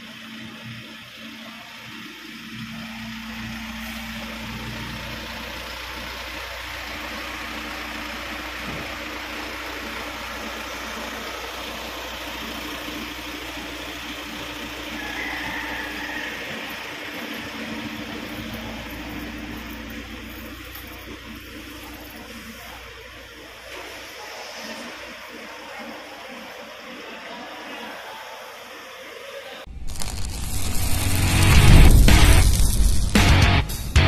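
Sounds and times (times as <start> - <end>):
truck diesel engine idling: 0.0 - 29.3
high-pitched hiss: 29.7 - 33.8.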